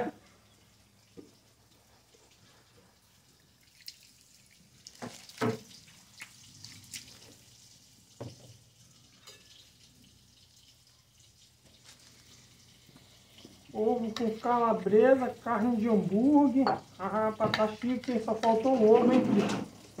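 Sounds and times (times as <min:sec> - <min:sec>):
liquid dripping: 0:00.0 - 0:19.0
cookware clicks and knocks: 0:16.6 - 0:19.6.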